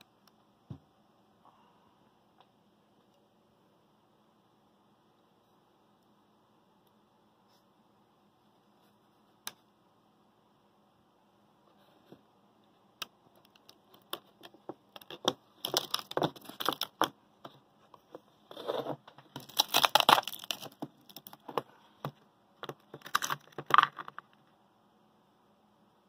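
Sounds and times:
ice crackling and cracking: 13.4 - 17.1, 18.5 - 21.6, 22.7 - 24.3.

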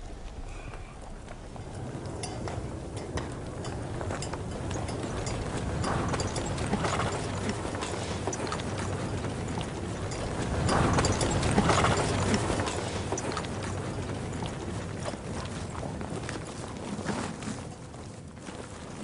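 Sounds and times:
horse hooves on stony ground: 0.0 - 19.0.

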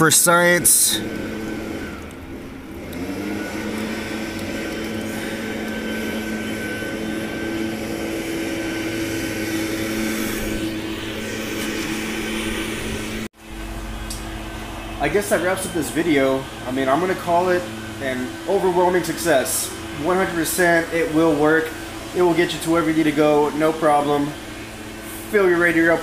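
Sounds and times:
motor or fan humming: 0.0 - 26.0.

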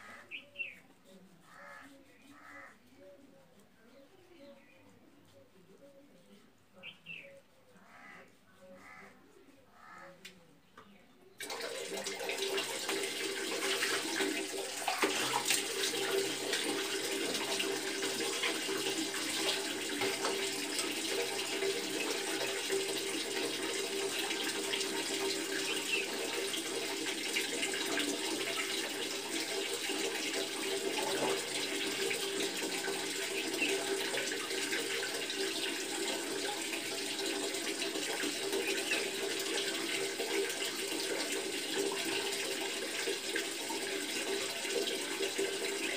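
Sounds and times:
hands splashing water: 11.4 - 41.0
water running onto tiled floor: 11.4 - 45.9.

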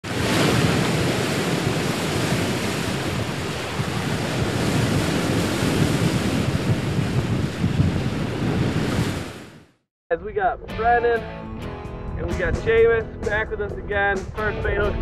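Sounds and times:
wind: 0.0 - 9.7
ocean waves: 0.0 - 9.8.

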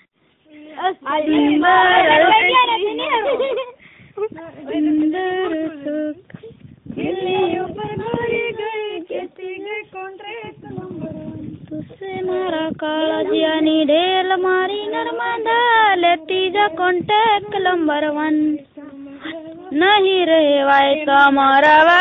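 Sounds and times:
women singing folk song: 0.0 - 22.0.

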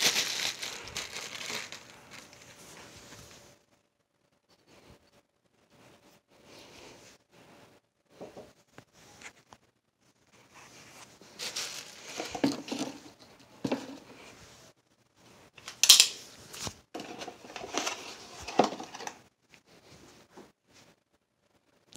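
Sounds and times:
cardboard rustling and crinkling: 0.0 - 3.6, 10.8 - 14.3, 16.4 - 19.2.

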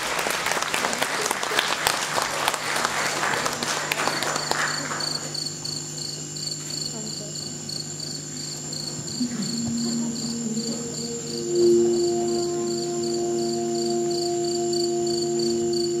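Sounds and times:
applause: 0.0 - 5.5
cricket chirping: 3.5 - 16.0
soft music notes: 9.1 - 16.0.

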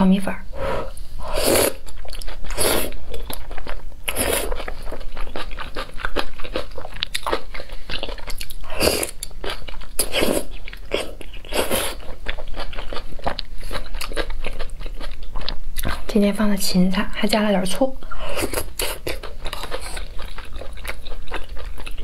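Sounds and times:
person slurping noodles: 0.6 - 1.8, 2.5 - 3.0, 4.1 - 4.7, 8.7 - 9.2, 10.0 - 12.0
person chewing noodles: 0.9 - 16.1, 18.2 - 22.0.

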